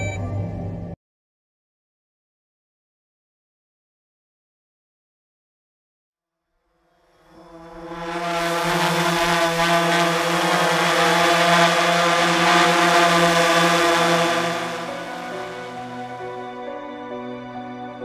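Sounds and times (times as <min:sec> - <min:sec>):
sustained synthesizer chord: 0:06.8 - 0:18.0
airy rushing layer: 0:07.3 - 0:17.0.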